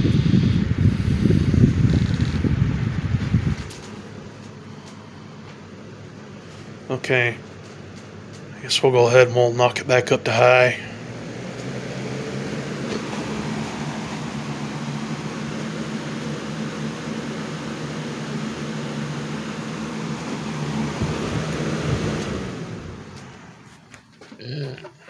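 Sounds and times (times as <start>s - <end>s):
box fan air rushing: 0.0s - 8.9s, 10.4s - 24.1s
fan motor hum: 0.0s - 25.0s.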